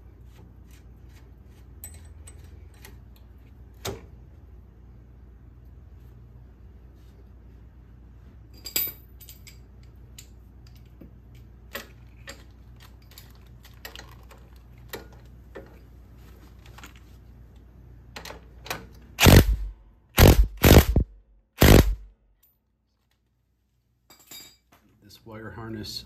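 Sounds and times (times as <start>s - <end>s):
metallic clicks and clinks: 8.6s - 15.2s
power driver bursts: 19.2s - 22.1s.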